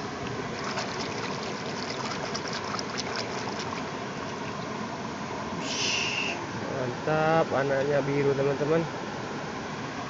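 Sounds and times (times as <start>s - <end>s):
river water rushing: 0.0s - 7.1s.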